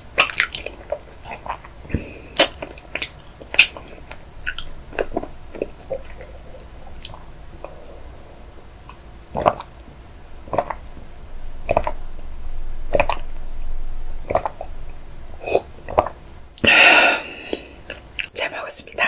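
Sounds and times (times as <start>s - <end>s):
person gulping a drink: 0.2s - 8.1s, 8.9s - 9.8s, 10.4s - 11.0s, 11.6s - 12.0s, 12.9s - 13.3s, 14.3s - 14.8s, 15.4s - 18.3s.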